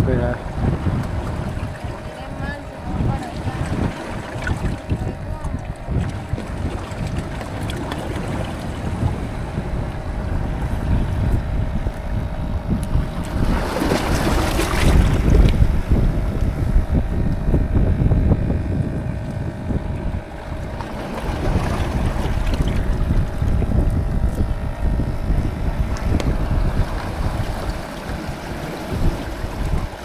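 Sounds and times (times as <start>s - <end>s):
surf washing on rocks: 0.0s - 12.0s, 12.9s - 16.7s, 20.5s - 30.0s
wind buffeting microphone: 0.0s - 30.0s.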